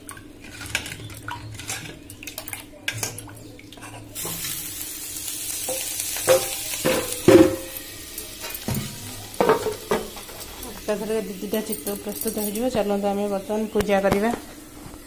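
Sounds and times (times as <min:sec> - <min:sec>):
batter sizzling on hot pan: 0:04.1 - 0:15.0.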